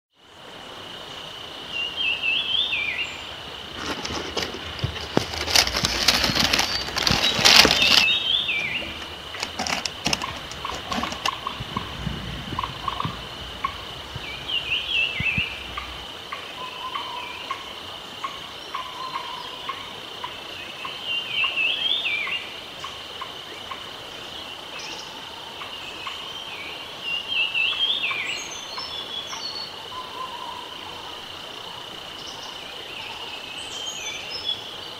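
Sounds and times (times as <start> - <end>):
warbling bird calls: 2.1 - 19.9
rustling and clicking: 3.7 - 11.9.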